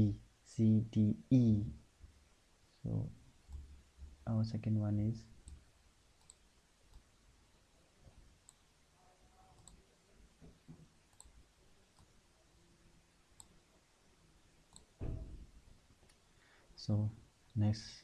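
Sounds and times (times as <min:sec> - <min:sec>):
computer mouse clicks: 0:06.2 - 0:07.1, 0:08.4 - 0:08.7, 0:09.6 - 0:09.8, 0:11.1 - 0:12.1, 0:14.7 - 0:15.0.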